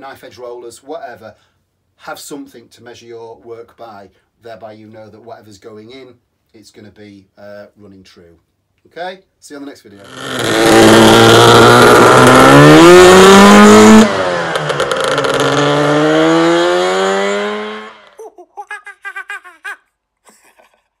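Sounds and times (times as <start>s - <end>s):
scooter engine accelerating: 10.0s - 18.2s.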